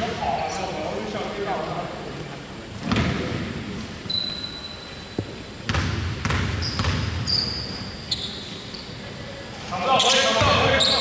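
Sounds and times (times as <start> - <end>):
sneaker squeaks: 4.0 - 9.3, 9.9 - 11.0
basketball bouncing on hardwood: 5.7 - 7.2.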